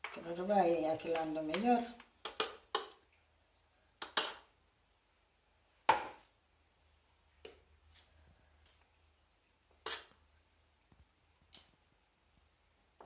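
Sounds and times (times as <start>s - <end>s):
metal forks scraping baking tray: 9.8s - 10.2s.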